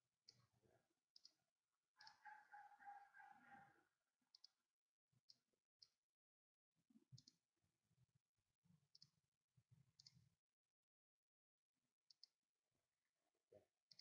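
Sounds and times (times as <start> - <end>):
computer mouse clicks: 2.0 - 2.2.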